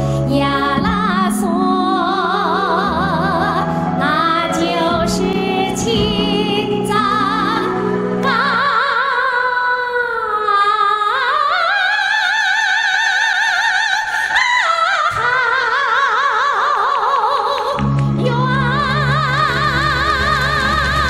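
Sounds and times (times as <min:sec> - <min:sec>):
faint backing track: 0:00.0 - 0:10.0
woman singing with vibrato: 0:00.0 - 0:21.0.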